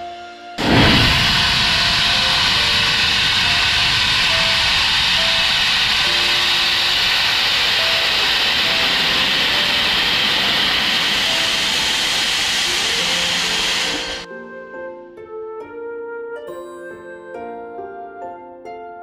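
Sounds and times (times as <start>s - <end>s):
steam locomotive hissing steam: 0.6s - 14.3s
gentle background music: 14.3s - 19.0s.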